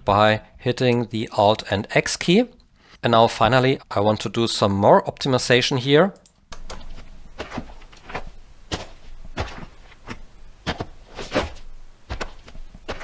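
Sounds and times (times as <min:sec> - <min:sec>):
boots walking on rocky dirt: 0:06.8 - 0:13.0.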